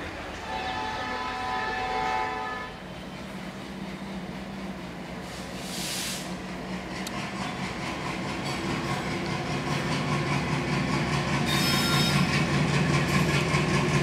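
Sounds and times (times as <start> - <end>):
diesel locomotive engine drone: 0.0 - 14.0
train horn: 0.3 - 2.8
burst of hiss: 5.3 - 6.4.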